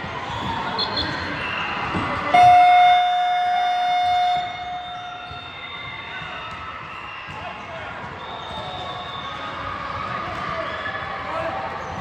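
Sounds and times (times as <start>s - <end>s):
scoreboard buzzer tone: 2.4s - 5.2s.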